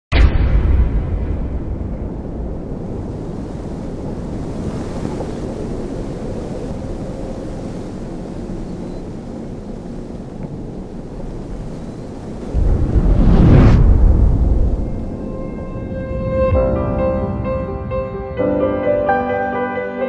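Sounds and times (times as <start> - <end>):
low rumble: 0.1 - 4.4, 12.5 - 18.7
wind-like hiss: 2.2 - 16.7.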